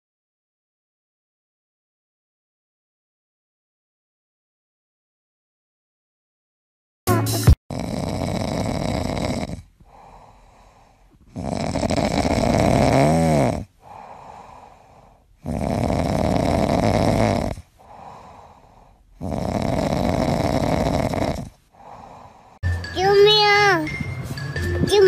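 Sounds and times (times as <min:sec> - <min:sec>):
cat snoring: 0:07.7 - 0:22.6
cat breathing: 0:07.8 - 0:12.7, 0:13.6 - 0:22.6.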